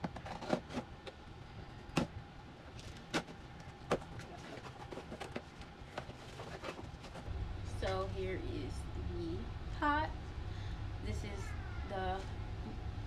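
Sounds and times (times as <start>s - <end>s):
cardboard scraping and rustling: 0.0s - 0.9s, 2.7s - 7.3s.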